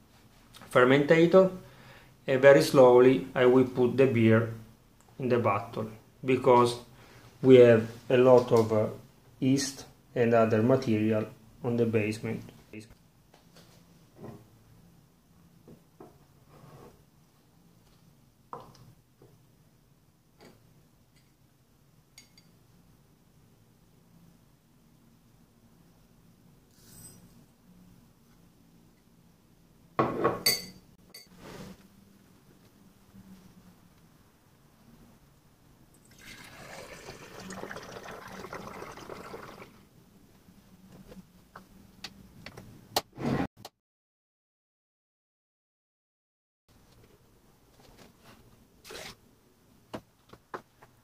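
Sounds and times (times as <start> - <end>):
liquid pouring into a bottle: 36.0 - 39.8.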